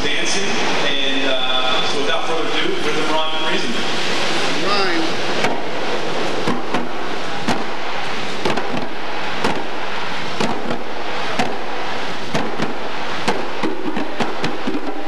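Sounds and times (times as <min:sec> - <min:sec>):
steady background noise: 0:00.0 - 0:15.0
hand drums slapped: 0:06.4 - 0:07.8, 0:08.4 - 0:09.8, 0:10.4 - 0:11.7, 0:12.3 - 0:15.0.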